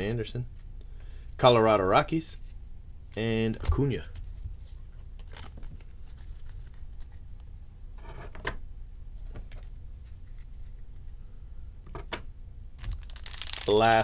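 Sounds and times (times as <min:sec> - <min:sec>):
low steady hum: 0:00.0 - 0:14.0
trading cards rustling and clicking: 0:05.2 - 0:07.2, 0:12.8 - 0:14.0.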